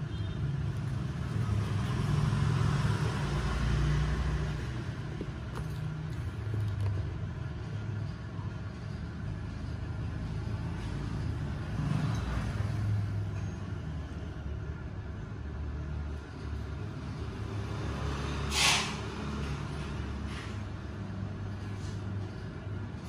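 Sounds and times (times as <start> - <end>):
short sharp hiss: 18.5 - 19.1.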